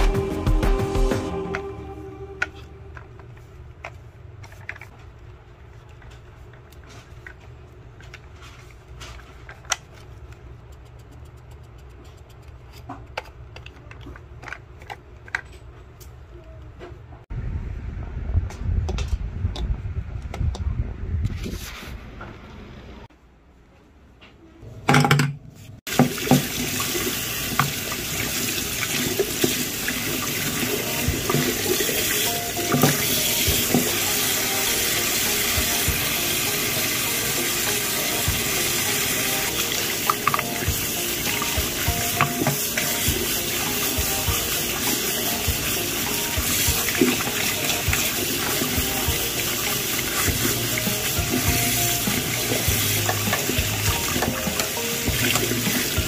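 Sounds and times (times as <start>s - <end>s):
tap water splashing: 25.9s - 34.0s, 39.5s - 43.3s, 46.3s - 56.0s.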